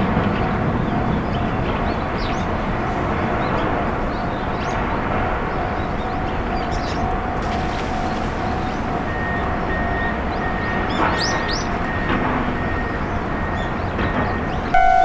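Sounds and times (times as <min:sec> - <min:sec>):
outdoor background rumble: 0:00.0 - 0:14.8
pulsing tone: 0:14.8 - 0:15.0.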